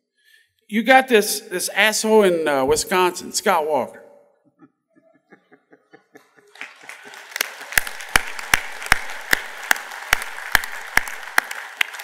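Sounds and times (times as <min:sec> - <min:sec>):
audience applause: 0:06.4 - 0:12.0
loud single claps: 0:06.9 - 0:12.0.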